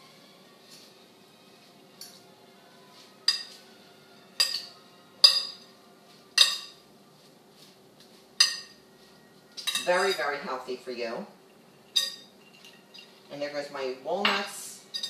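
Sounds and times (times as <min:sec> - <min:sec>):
spoon clinking against glass bowl: 0:04.4 - 0:05.7, 0:09.6 - 0:10.2, 0:11.8 - 0:13.2.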